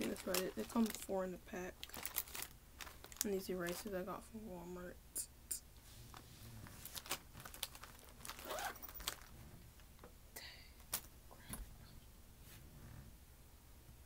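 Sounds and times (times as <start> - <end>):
plastic crinkling: 0.0 - 4.0, 6.1 - 10.0.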